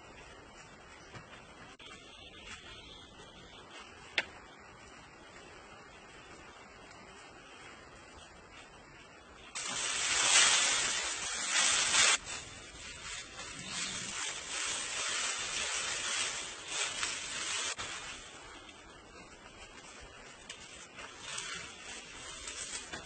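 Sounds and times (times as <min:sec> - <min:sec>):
dry grass thatch rustling: 0:09.5 - 0:23.0.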